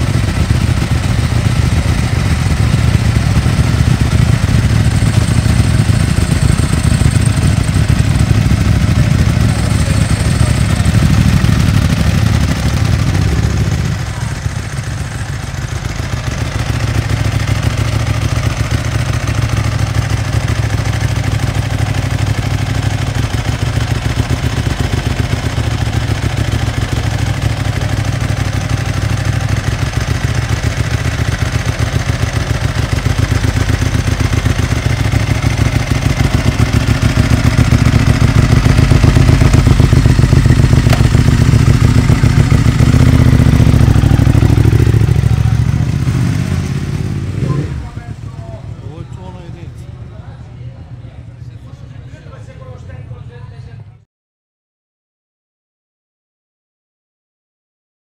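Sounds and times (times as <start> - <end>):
motorcycle engine idling and revving: 0.0 - 53.8.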